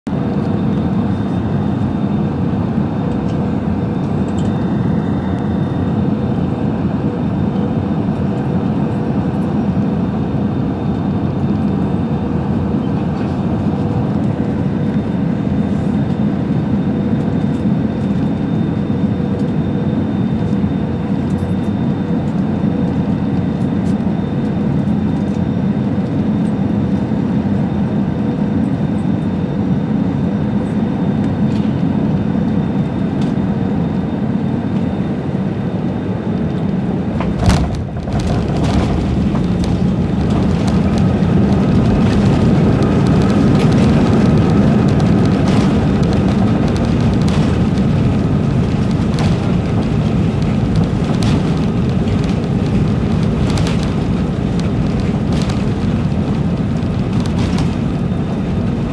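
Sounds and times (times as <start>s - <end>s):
airliner engine and airflow drone: 0.0s - 58.9s
landing gear thump: 37.2s - 39.8s.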